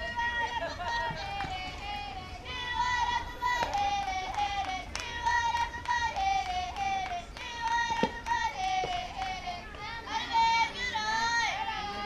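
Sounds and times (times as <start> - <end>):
hands clapping: 3.4 - 9.9.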